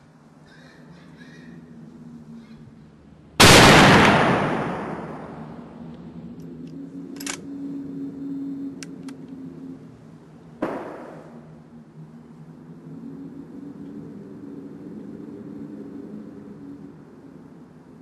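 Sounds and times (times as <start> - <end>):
rifle shot echoing: 3.4 - 5.6, 10.6 - 11.3
rifle bolt metallic clicks: 6.4 - 7.5, 8.8 - 9.3.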